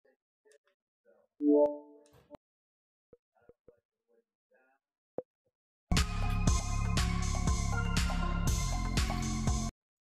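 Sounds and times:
electronic chime chord: 0:01.4 - 0:02.0.

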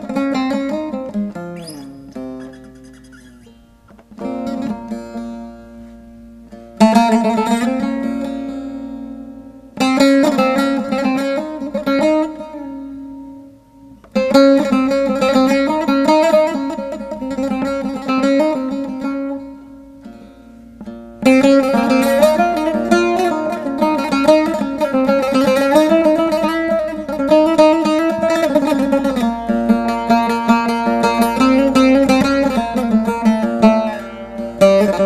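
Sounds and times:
plucked string instrument music: 0:00.0 - 0:35.0.

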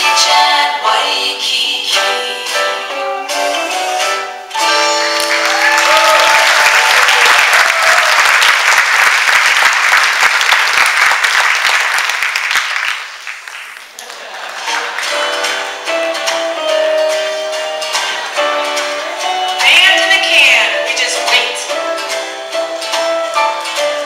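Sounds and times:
music: 0:00.0 - 0:07.2, 0:14.5 - 0:24.0
audience applauding: 0:04.9 - 0:16.4.

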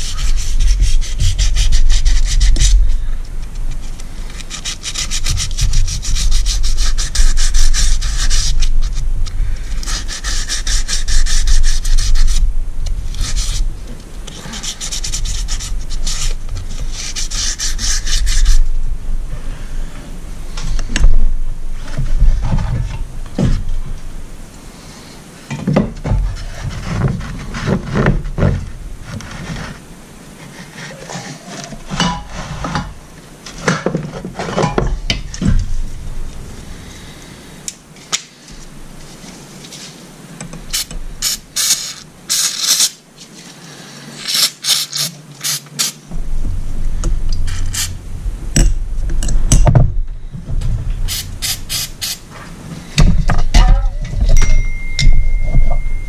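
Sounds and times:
metal parts knocking and rubbing: 0:00.0 - 0:03.0, 0:53.0 - 0:56.0
aerosol can spraying: 0:40.7 - 0:43.0, 0:44.3 - 0:46.0, 0:51.1 - 0:52.2.

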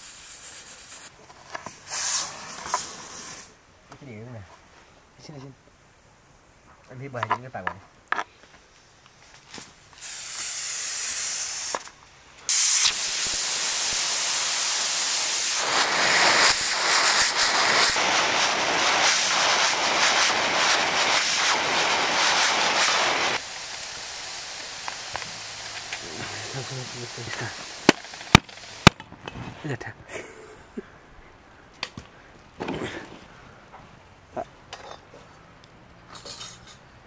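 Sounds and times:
loud cooking hiss: 0:00.0 - 0:01.1, 0:01.8 - 0:03.6, 0:09.8 - 0:28.9.

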